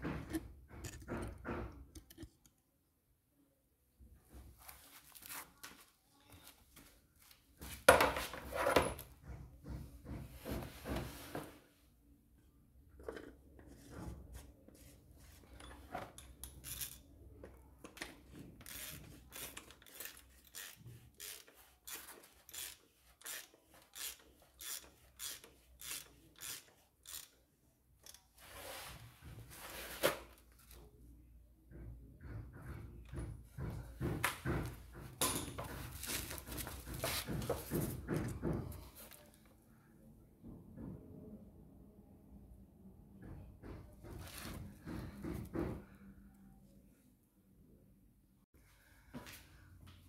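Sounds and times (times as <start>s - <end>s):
socket ratchet clicking: 18.7s - 27.4s.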